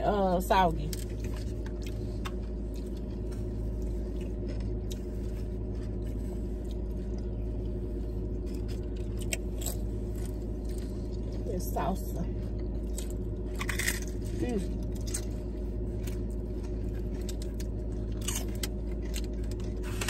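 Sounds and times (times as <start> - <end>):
chips crunching: 0.9 - 11.4, 12.5 - 20.0.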